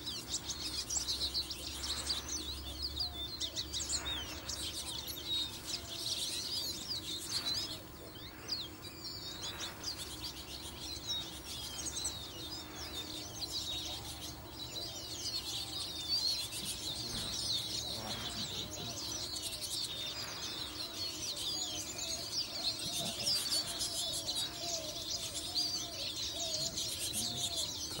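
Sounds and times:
lower wavering bird calls: 0:00.0 - 0:28.0
small birds chirping: 0:00.0 - 0:28.0.

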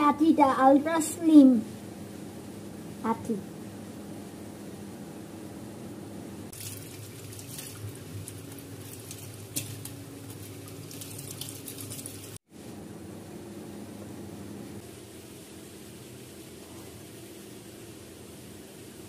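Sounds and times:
water splashing over hands: 0:06.6 - 0:12.4.

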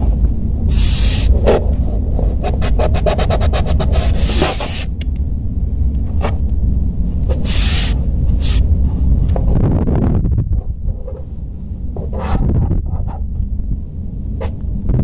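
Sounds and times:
low rumble: 0:00.0 - 0:15.0
pencil sketching: 0:00.7 - 0:01.6, 0:02.2 - 0:04.9, 0:07.3 - 0:08.6
hand rubbing paper: 0:00.7 - 0:04.9, 0:07.2 - 0:08.6.

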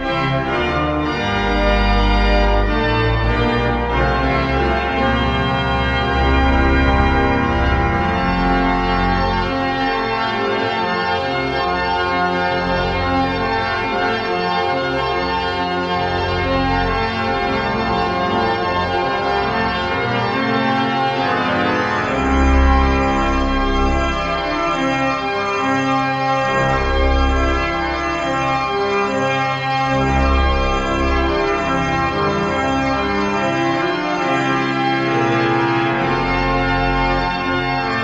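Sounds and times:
pipe organ playing: 0:00.0 - 0:38.0.

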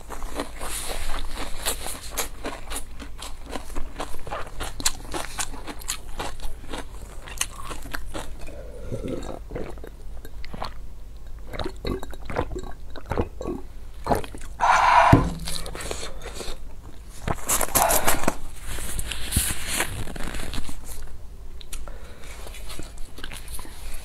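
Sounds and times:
gulping from plastic cup: 0:08.3 - 0:16.4
sharp knock: 0:14.6 - 0:15.7
breathy burst: 0:14.6 - 0:16.3.

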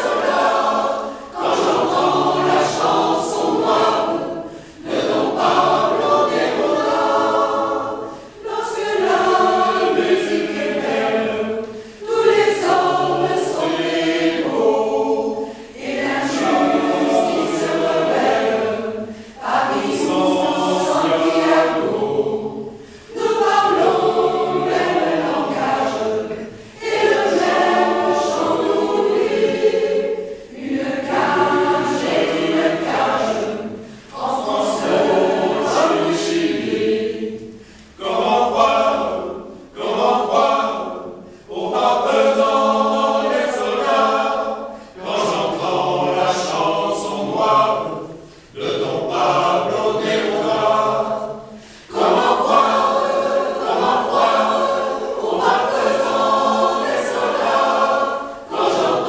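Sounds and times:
mixed choir singing: 0:00.0 - 0:59.0.

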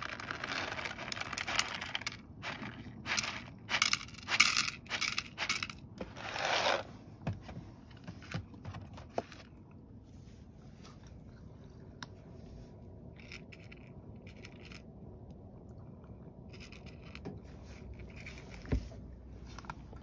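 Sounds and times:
dry kibble rattling into a bowl: 0:00.0 - 0:06.8, 0:13.2 - 0:14.8, 0:16.5 - 0:18.7.

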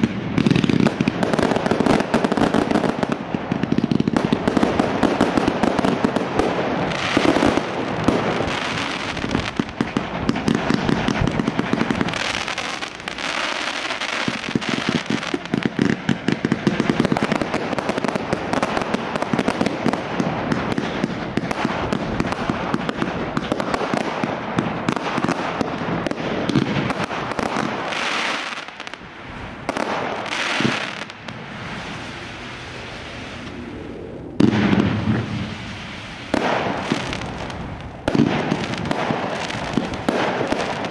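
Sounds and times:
fireworks popping and crackling: 0:00.0 - 0:40.9
loud firework bang: 0:34.4 - 0:35.6.

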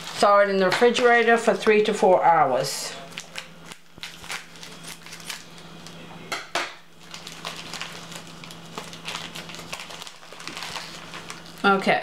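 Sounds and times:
plastic crinkling: 0:02.9 - 0:06.0, 0:07.0 - 0:12.0
scissors snipping plastic bag: 0:07.0 - 0:11.6.

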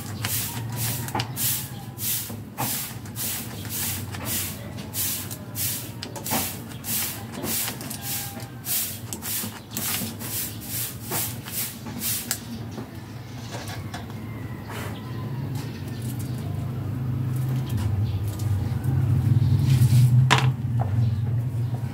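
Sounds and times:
rhythmic scraping strokes: 0:00.0 - 0:12.4.

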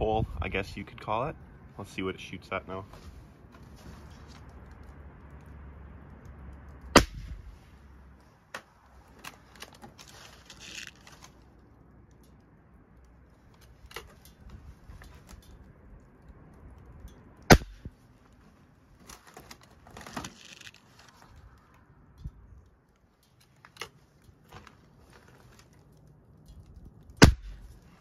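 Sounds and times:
faint clicks and handling noise: 0:00.5 - 0:28.0
air rifle shots cracking: 0:07.0 - 0:07.5, 0:17.5 - 0:17.9, 0:27.2 - 0:27.7.

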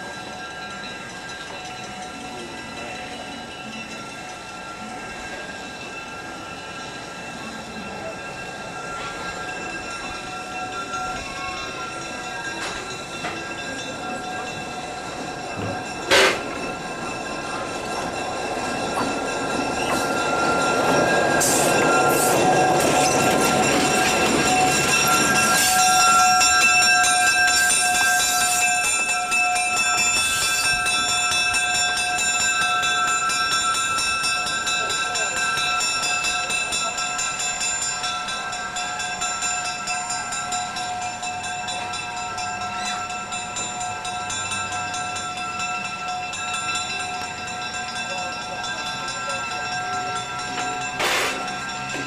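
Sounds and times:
diesel locomotive engine passing: 0:00.0 - 0:52.0.

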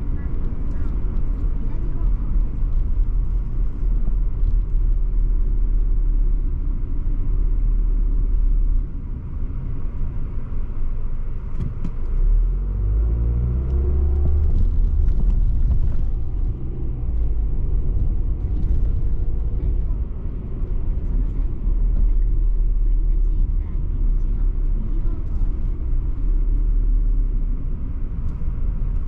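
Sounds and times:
car engine: 0:00.0 - 0:29.0
tyre rumble: 0:13.4 - 0:29.0.

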